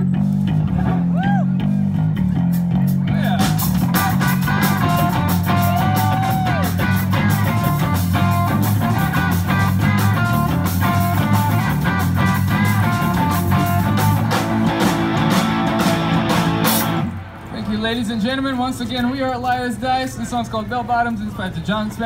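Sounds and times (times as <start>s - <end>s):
drum kit beating: 0.0s - 18.5s
bass guitar: 0.0s - 19.4s
electric guitar riff: 3.2s - 18.0s.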